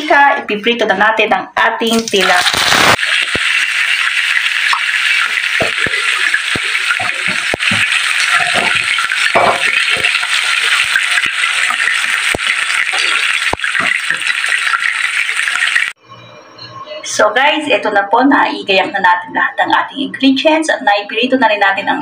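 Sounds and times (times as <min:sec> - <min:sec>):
fish sizzling in hot oil: 0:01.9 - 0:16.0.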